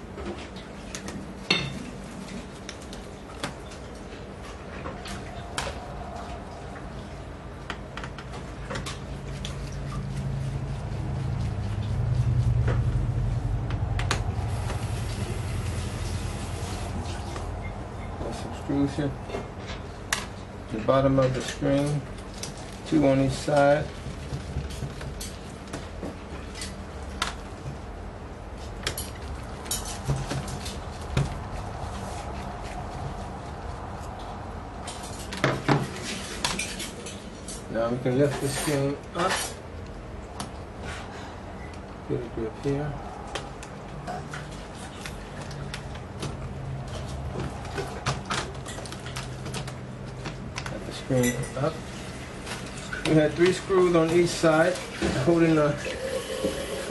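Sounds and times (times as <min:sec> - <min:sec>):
low hum: 0:09.6 - 0:18.2.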